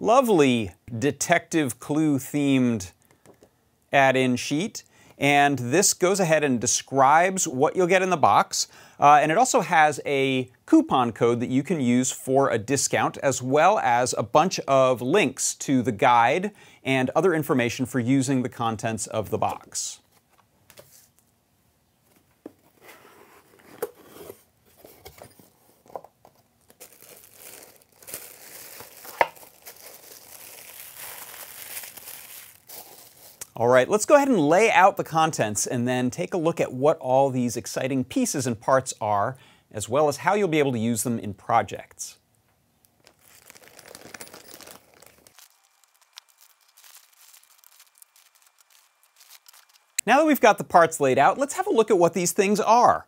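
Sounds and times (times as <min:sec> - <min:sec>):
tissue paper crinkling: 0:26.6 - 0:33.4, 0:43.0 - 0:50.0
small items clicking: 0:42.8 - 0:50.1.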